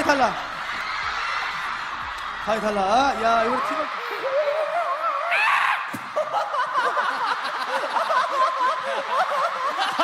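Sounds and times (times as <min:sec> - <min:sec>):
people laughing: 0:03.3 - 0:05.4, 0:06.0 - 0:10.0.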